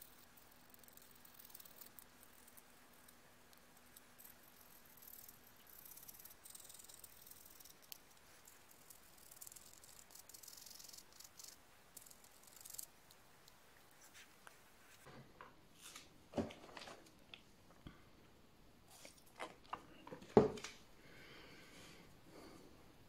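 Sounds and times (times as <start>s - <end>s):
toothpick scratching plastic: 0.0s - 13.6s.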